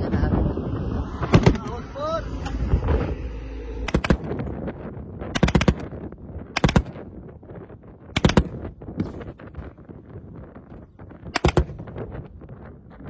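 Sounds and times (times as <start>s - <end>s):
machine-gun fire bursts: 5.4s - 5.8s.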